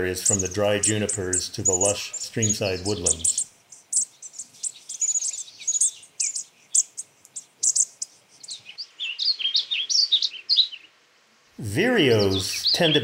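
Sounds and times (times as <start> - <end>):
high thin bird chip notes: 0.0 - 8.8
bird warbling song: 0.0 - 11.0, 11.9 - 13.0.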